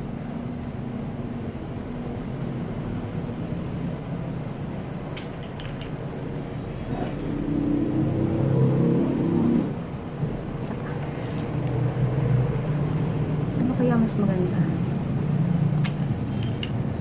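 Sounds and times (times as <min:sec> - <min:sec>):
low motor rumble and hum: 0:06.1 - 0:16.3.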